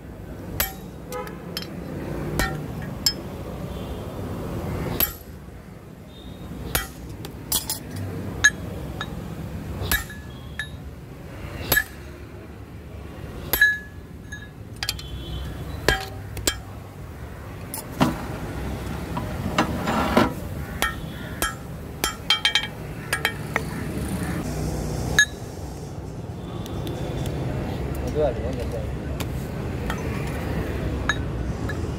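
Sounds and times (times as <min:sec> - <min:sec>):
hammer striking anvil: 0:00.6 - 0:01.0, 0:02.4 - 0:03.2, 0:05.0 - 0:05.4, 0:06.7 - 0:07.1, 0:09.9 - 0:10.8, 0:11.7 - 0:12.0, 0:13.5 - 0:15.0, 0:20.8 - 0:23.4.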